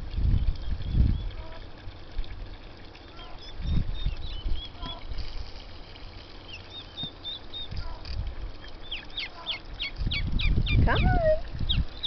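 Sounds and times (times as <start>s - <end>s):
poults peeping: 3.1s - 5.1s, 6.4s - 12.0s.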